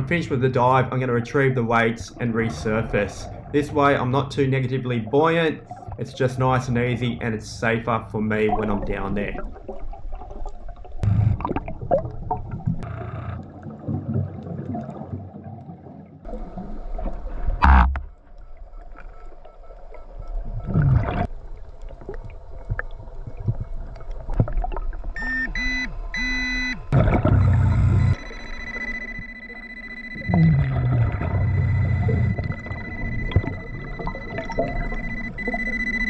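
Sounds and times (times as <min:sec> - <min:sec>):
exhaled bubbles burbling: 0:08.3 - 0:18.0, 0:20.4 - 0:21.3, 0:26.9 - 0:28.2, 0:30.2 - 0:35.7
short electronic beeps: 0:25.2 - 0:36.0.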